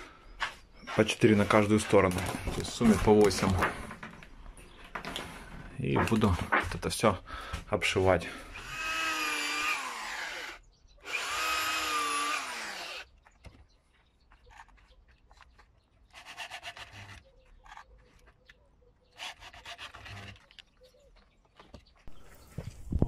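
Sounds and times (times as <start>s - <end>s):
electric drill boring into wood: 8.5s - 13.2s.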